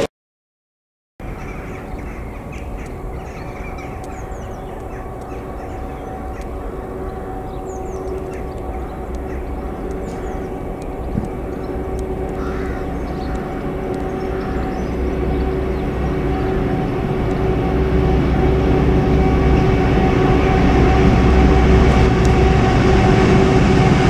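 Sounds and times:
small birds chirping: 1.2s - 16.6s
diesel locomotive drone: 1.2s - 24.0s.

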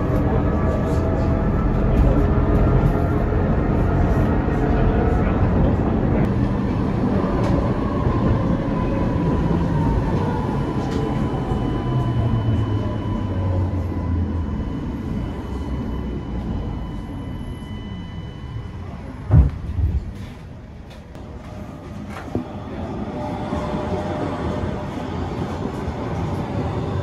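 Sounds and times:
tram rumbling: 0.0s - 27.0s
tram whine: 0.0s - 27.0s
loud thump: 19.3s - 20.2s.

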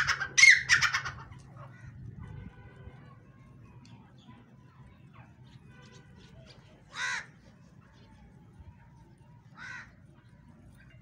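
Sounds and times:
crow-like bird call: 6.9s - 7.4s, 9.6s - 10.0s.

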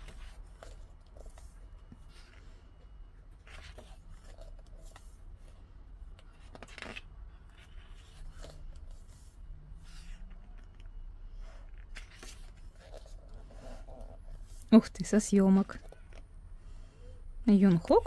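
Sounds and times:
book pages turning: 0.0s - 2.6s, 3.2s - 11.0s, 11.6s - 14.6s.

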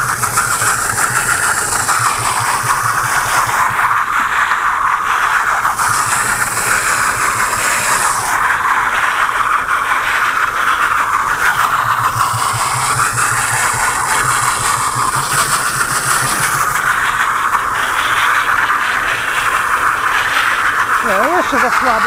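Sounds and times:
tractor engine running: 0.0s - 3.8s, 11.2s - 18.2s
bale wrapper mechanical whirr: 0.0s - 22.0s.

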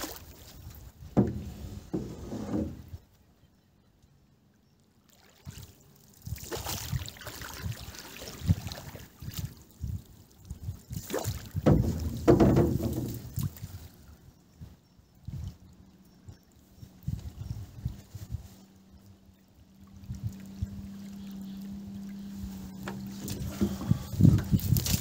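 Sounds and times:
water sloshing around hull: 0.0s - 3.3s, 4.7s - 25.0s
pole knocking against boat: 1.1s - 2.8s, 11.6s - 13.2s.

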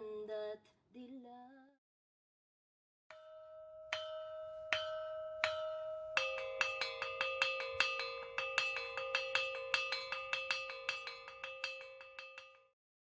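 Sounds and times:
struck metal bell ringing: 3.1s - 12.8s.

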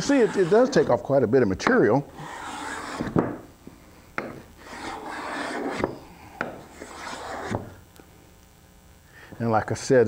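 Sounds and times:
cabinet scraper rasping on wood: 0.0s - 0.9s, 2.1s - 3.4s, 4.2s - 7.7s.

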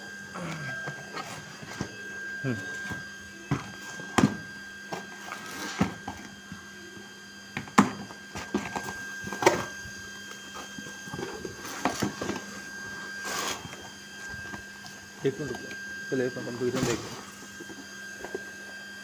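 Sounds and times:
cardboard and paper rustling: 0.4s - 6.7s, 7.9s - 15.7s.

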